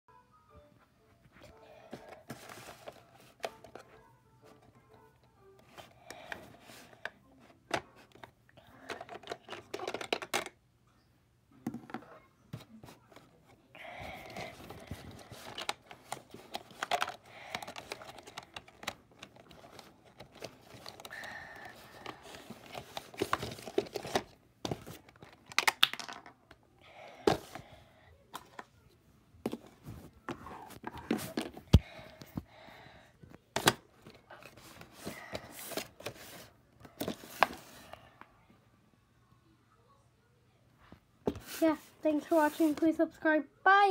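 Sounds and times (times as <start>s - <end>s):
plastic toy clicking and knocking: 7.7s - 10.6s.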